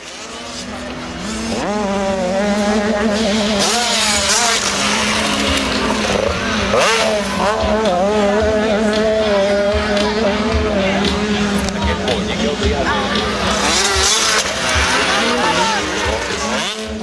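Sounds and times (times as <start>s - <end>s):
dirt bike engines revving: 0.0s - 17.0s
low engine drone: 0.0s - 17.0s.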